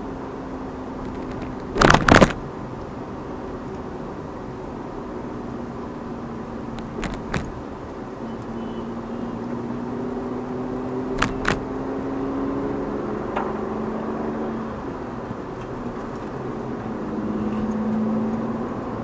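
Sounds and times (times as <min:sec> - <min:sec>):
faint engine hum: 0:00.0 - 0:19.0
road and tyre noise: 0:00.0 - 0:19.0
car jolting over bumps: 0:01.1 - 0:02.4, 0:06.8 - 0:07.7, 0:11.1 - 0:11.6.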